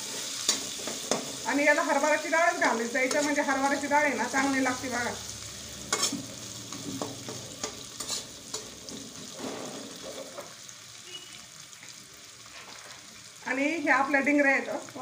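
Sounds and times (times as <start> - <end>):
metal spatula scraping a pan: 0.0 - 1.4, 2.5 - 4.5, 5.8 - 10.6
lentils and leaves sizzling in oil: 0.0 - 15.0.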